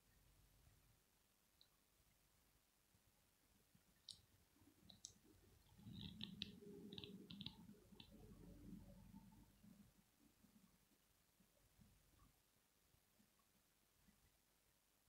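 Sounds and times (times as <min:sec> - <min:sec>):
faint clicks: 0:04.0 - 0:09.0.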